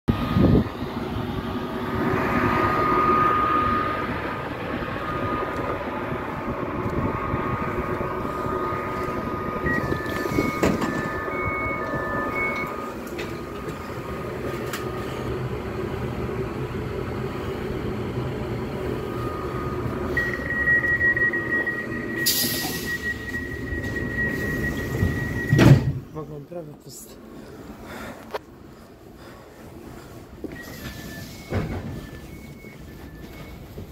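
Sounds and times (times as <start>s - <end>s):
steady high tone: 0.1s - 25.7s
train hum: 0.1s - 33.9s
two-tone door beeps: 8.2s - 13.8s, 19.1s - 26.0s, 30.5s - 33.9s
pneumatic door hiss: 22.2s - 23.3s, 30.6s - 32.0s.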